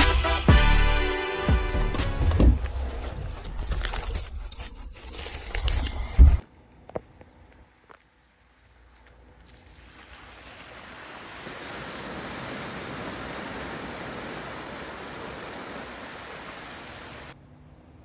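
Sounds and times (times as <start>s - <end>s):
tyres splashing through puddle: 9.4s - 17.4s.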